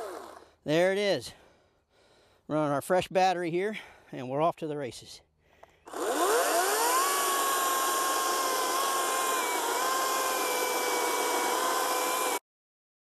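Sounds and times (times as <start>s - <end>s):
electric chainsaw motor whining: 0.0s - 0.5s, 5.9s - 12.4s.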